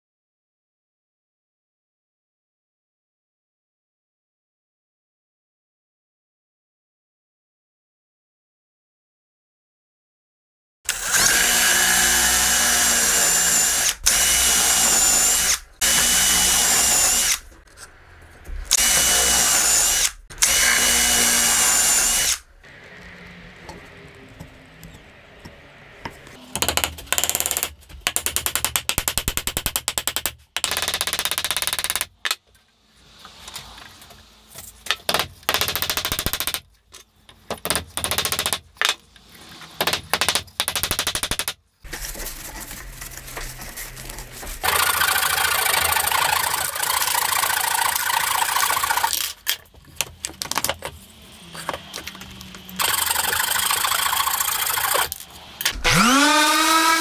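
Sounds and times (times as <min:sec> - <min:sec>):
cordless drill boring into wood: 0:10.9 - 0:17.4, 0:18.7 - 0:22.5, 0:44.6 - 0:49.3, 0:52.8 - 0:55.2, 0:55.8 - 0:57.0.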